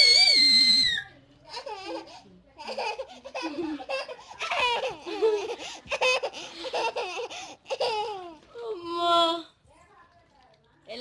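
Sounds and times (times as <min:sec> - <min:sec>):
toddler laughing and babbling: 0:01.5 - 0:08.4.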